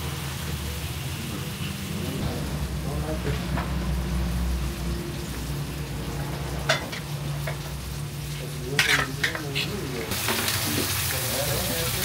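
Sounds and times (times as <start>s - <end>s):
steady low hum: 1.9s - 8.7s
eggs frying in a pan: 4.3s - 12.0s
dishes and cutlery clinking: 6.6s - 7.7s, 8.7s - 9.8s.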